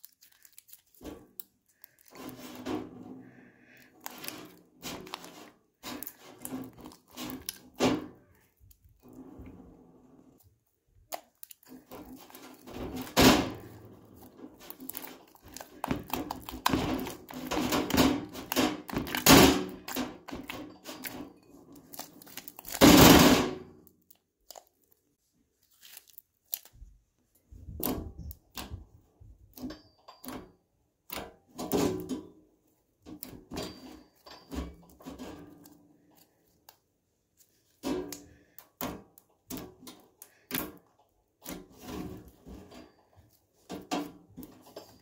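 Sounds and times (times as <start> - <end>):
slime squishing: 0.0 - 2.6, 3.2 - 9.5, 10.3 - 22.9, 23.9 - 28.6.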